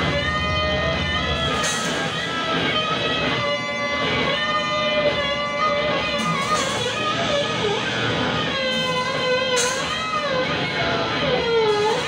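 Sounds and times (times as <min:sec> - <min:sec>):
low rumble: 0:00.0 - 0:02.6.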